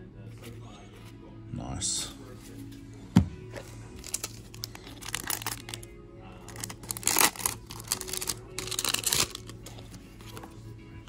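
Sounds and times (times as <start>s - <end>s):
soft background music: 0.0s - 11.0s
wrappers rustling and tearing: 4.0s - 5.9s, 6.5s - 10.4s.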